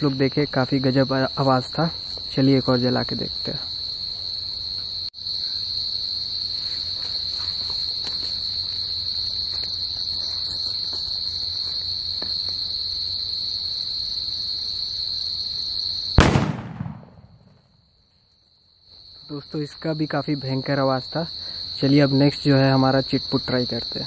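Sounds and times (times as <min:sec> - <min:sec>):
crickets chirping: 0:00.0 - 0:24.0
firecracker bang: 0:16.2 - 0:17.6.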